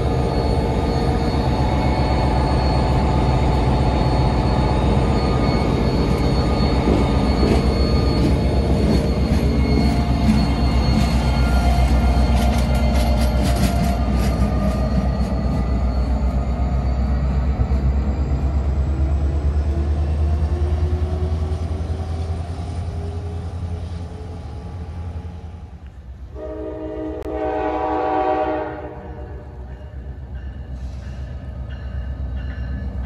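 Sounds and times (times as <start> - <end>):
train rumbling past: 0.0 - 33.0
distant train horn: 26.3 - 29.7.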